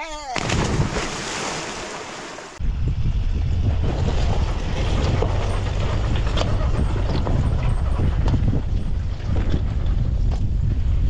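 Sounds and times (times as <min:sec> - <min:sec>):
wind buffeting microphone: 0:02.6 - 0:11.0.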